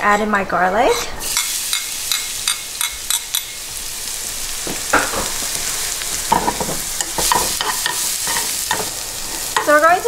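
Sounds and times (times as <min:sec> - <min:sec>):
metal spoon scraping pan: 0:00.0 - 0:03.6
garlic sizzling in oil: 0:00.9 - 0:10.0.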